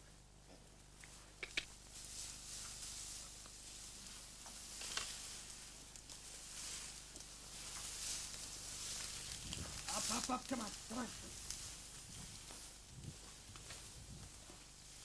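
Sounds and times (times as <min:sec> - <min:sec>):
sharp clicks: 0:01.0 - 0:01.7
grass and clothing rustling: 0:01.7 - 0:15.0.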